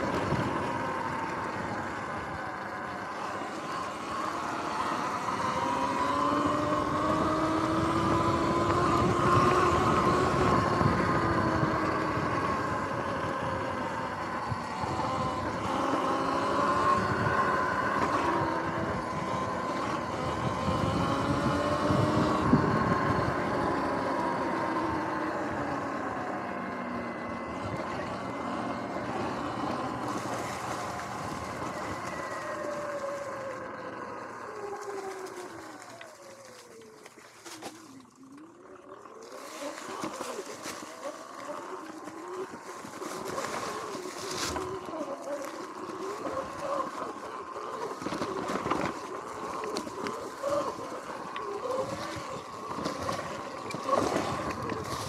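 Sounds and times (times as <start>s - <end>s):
steady rough noise: 0.0s - 36.8s
electric motor whining: 0.0s - 55.0s.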